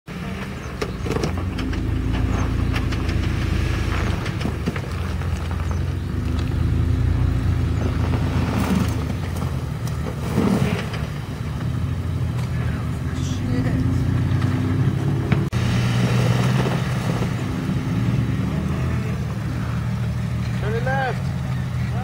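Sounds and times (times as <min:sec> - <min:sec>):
engine running at low revs: 0:00.1 - 0:22.0
rocks clicking under tyres: 0:00.2 - 0:12.7.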